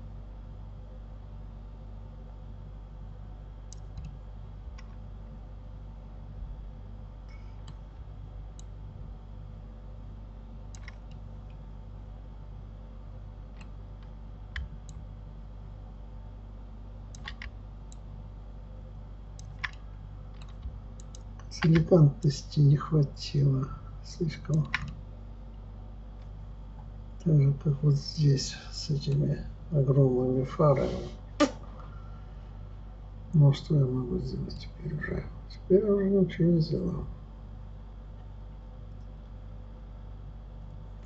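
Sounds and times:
steady low hum: 0.0s - 41.0s
mouse and keyboard clicks: 10.7s - 11.2s, 17.1s - 18.0s.

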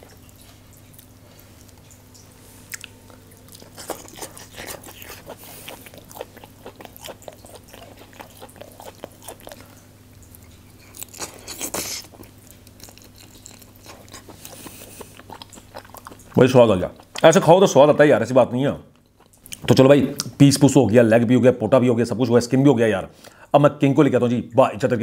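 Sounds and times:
person eating with wet smacks: 0.0s - 17.5s, 18.9s - 20.4s
biting and sucking: 3.5s - 9.7s, 10.4s - 17.3s.

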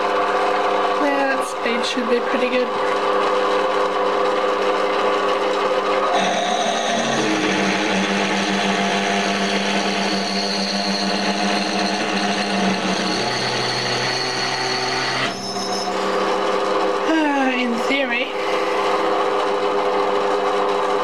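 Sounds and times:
lathe motor hum: 0.0s - 21.0s
drill cutting metal hiss: 6.1s - 16.4s
high squeal: 6.1s - 16.4s.

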